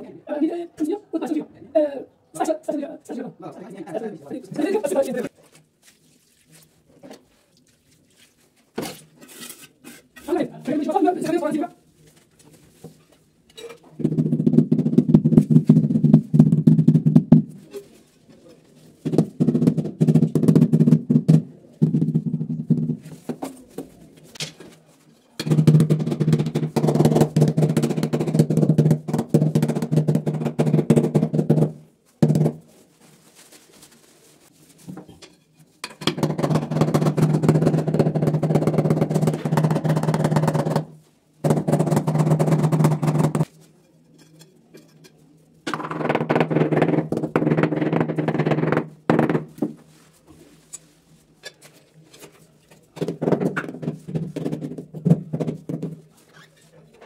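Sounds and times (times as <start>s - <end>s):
rubber mallet tapping tiles: 25.4s - 32.6s, 36.0s - 43.5s.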